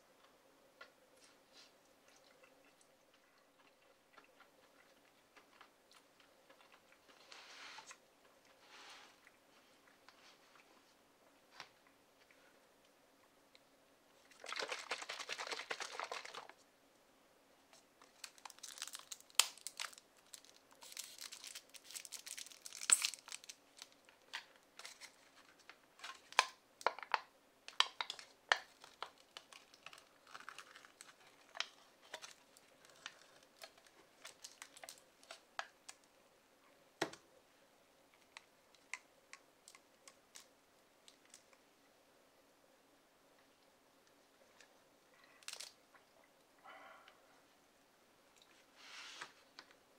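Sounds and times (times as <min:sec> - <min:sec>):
plastic packaging crinkling: 0:14.3 - 0:16.6, 0:18.0 - 0:36.1, 0:45.4 - 0:45.8
crackles and clicks: 0:17.7 - 0:36.2, 0:38.1 - 0:41.7, 0:43.4 - 0:46.6.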